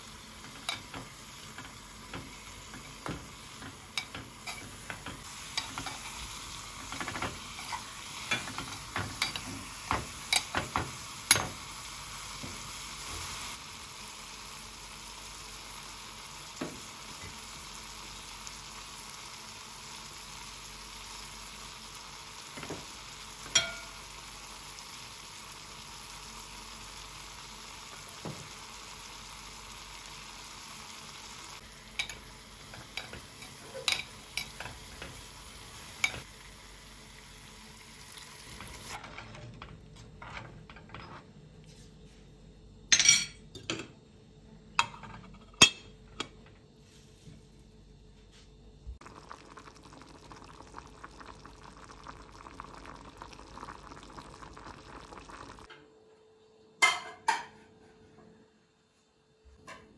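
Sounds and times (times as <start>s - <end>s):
food sizzling in a pan: 0.0s - 39.1s, 49.0s - 55.7s
cookware clinking: 23.5s - 24.0s, 32.0s - 35.2s.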